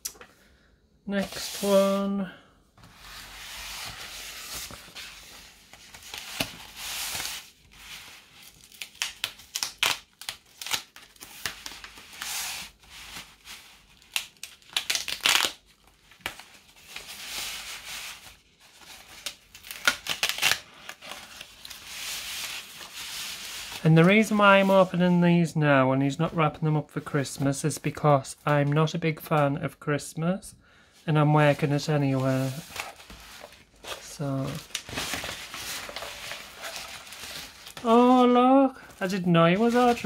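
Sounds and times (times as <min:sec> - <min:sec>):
paper tearing and crinkling: 0:03.2 - 0:24.8, 0:32.2 - 0:38.2.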